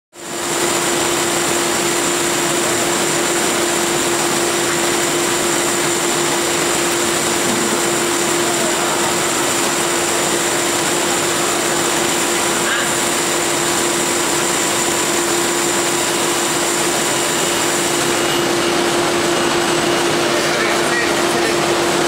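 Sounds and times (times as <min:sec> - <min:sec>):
factory machinery hiss and hum: 0:00.2 - 0:22.0
high machine whine: 0:00.2 - 0:22.0.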